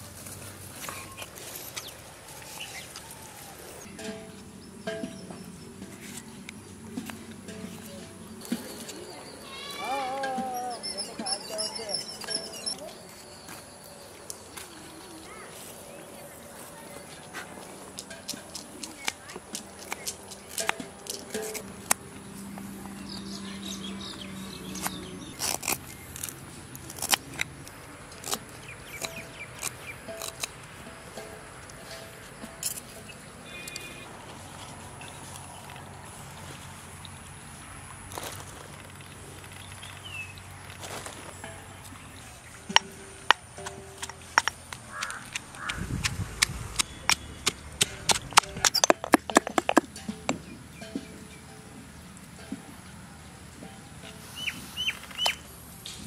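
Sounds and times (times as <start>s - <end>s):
faint bird chirps: 8.5s - 14.1s
stone pestle pounding in mortar: 42.7s - 51.0s.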